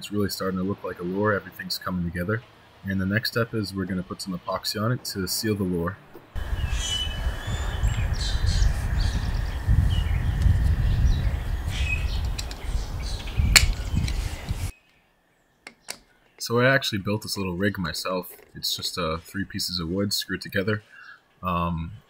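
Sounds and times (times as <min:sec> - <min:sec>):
birds chirping: 0:00.0 - 0:22.0
wind buffeting microphone: 0:06.4 - 0:14.7
sharp click: 0:13.5 - 0:14.2.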